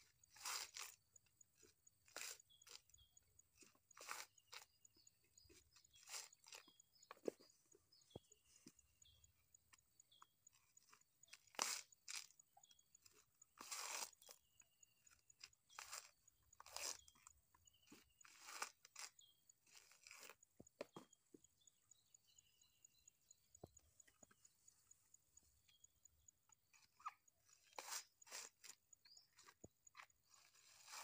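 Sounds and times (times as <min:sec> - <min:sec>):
coconut husk fibre crunching: 0:00.0 - 0:08.1, 0:10.2 - 0:21.1, 0:26.7 - 0:31.0.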